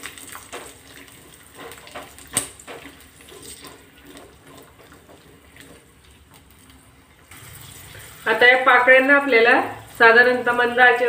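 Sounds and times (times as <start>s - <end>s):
spatula scraping and tapping pan: 0.0s - 8.2s
garlic sizzling in hot oil: 0.0s - 11.0s.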